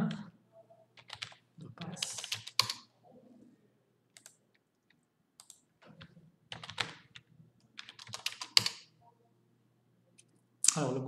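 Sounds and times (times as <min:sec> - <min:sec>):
computer keyboard typing: 0:01.0 - 0:02.9, 0:04.1 - 0:08.9.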